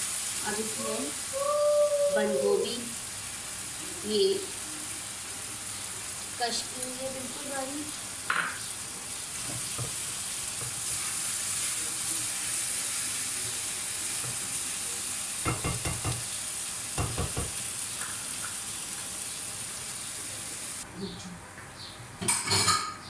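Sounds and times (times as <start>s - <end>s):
food sizzling in a wok: 0.0s - 20.9s
utensil scraping a wok: 9.3s - 14.5s.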